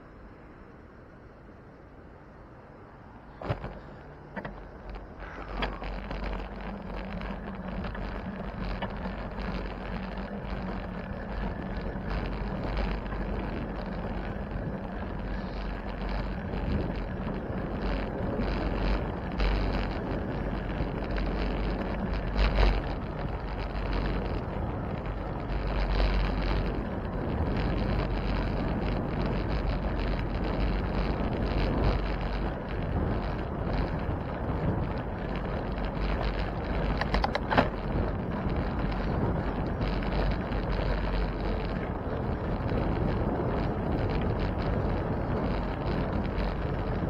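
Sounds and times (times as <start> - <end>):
bicycle road noise: 0.0 - 47.0
wind rumbling on microphone: 0.0 - 47.0
sharp clicks: 36.1 - 37.8.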